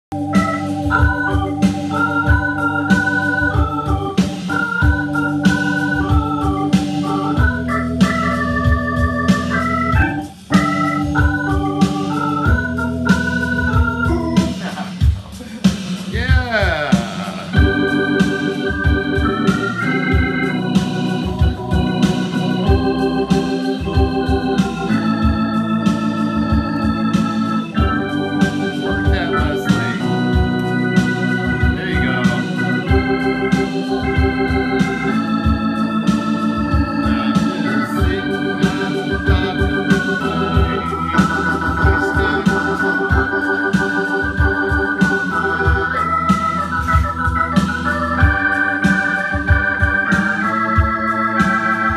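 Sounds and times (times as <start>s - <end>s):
organ chords with warble: 0.0s - 51.9s.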